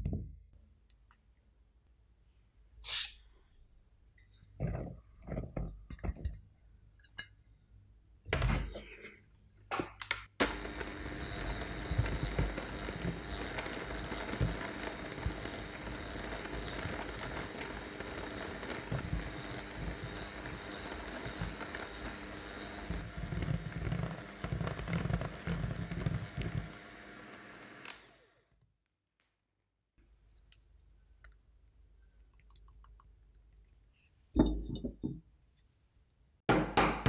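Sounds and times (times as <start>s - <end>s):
electric hand mixer running: 10.4s - 28.5s.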